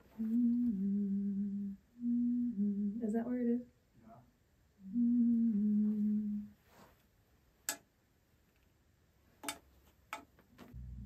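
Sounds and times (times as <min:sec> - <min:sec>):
woman humming a held note: 0:00.2 - 0:03.1, 0:04.8 - 0:06.6.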